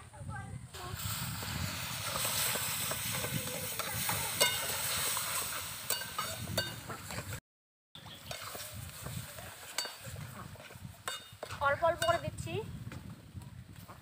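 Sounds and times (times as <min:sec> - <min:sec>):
food sizzling in a pan: 0:00.8 - 0:06.7
metal spatula scraping a pan: 0:01.8 - 0:07.2, 0:08.2 - 0:08.8.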